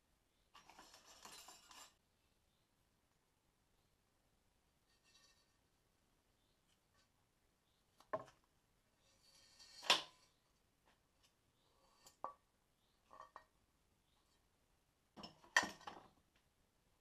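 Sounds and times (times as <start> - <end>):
light knocks and clicks of metal parts: 15.2 - 16.5.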